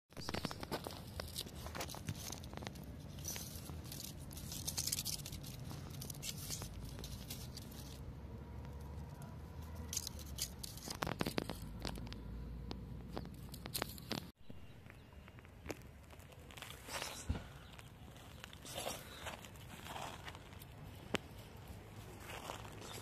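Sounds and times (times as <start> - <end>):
dry grass and leaves rustling: 0.1 - 23.0
light clicks and scratches: 0.2 - 14.4.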